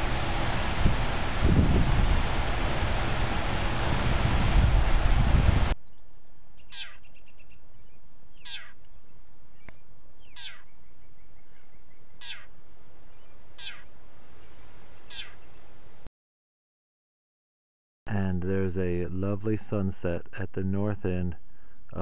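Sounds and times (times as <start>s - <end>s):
rushing river water: 0.0s - 5.7s
wind: 0.0s - 16.1s, 18.1s - 22.0s
songbird downward sweeping call: 5.7s - 7.5s, 8.4s - 8.8s, 10.2s - 10.8s, 12.1s - 12.6s, 13.6s - 13.9s, 15.0s - 15.6s.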